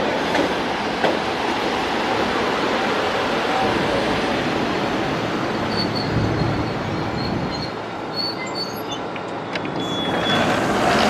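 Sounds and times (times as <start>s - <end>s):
train wheels rumbling on rail: 0.0s - 11.0s
high-pitched brake squeals: 5.6s - 10.6s.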